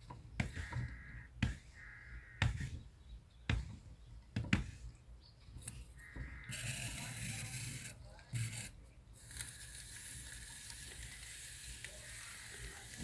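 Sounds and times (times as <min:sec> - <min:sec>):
sharp knocks: 0:00.1 - 0:01.8, 0:02.4 - 0:02.8
crow cawing: 0:00.6 - 0:02.6, 0:06.0 - 0:06.8.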